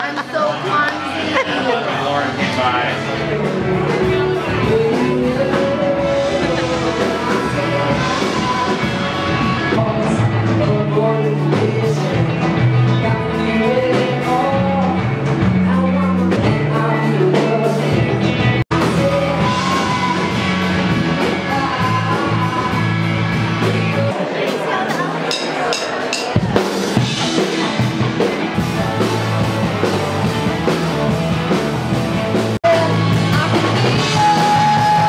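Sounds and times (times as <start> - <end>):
guitar: 0.0 - 35.0
rock music: 0.0 - 35.0
person singing: 2.9 - 25.0, 32.6 - 35.0.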